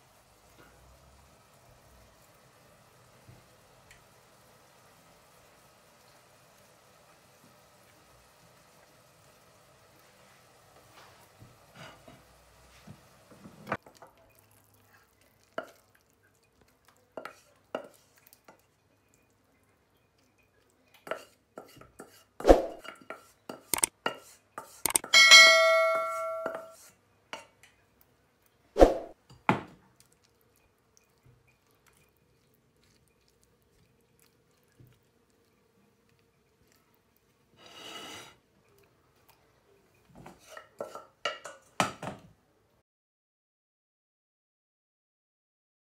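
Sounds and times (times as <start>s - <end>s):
wooden spatula scraping pan: 11.7s - 13.7s, 21.0s - 25.1s, 37.5s - 38.4s, 40.1s - 41.7s
metal pan clang: 25.0s - 26.8s.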